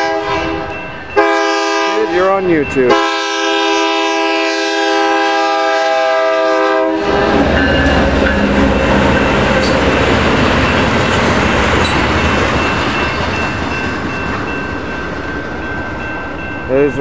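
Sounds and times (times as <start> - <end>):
locomotive air horn: 0.0 - 2.3, 2.9 - 8.2
wheels rumbling on rails: 7.0 - 17.0.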